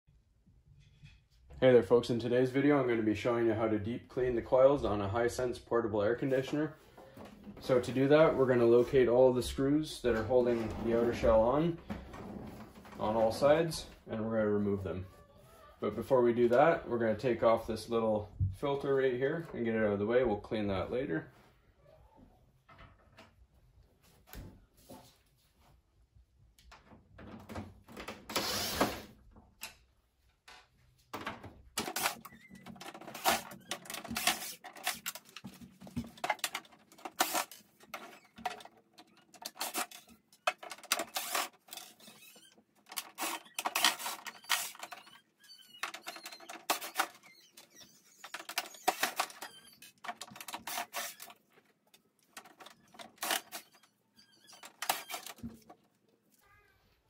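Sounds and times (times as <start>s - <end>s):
metal screws rattling: 31.8s - 51.4s
cordless drill running: 41.1s - 41.5s.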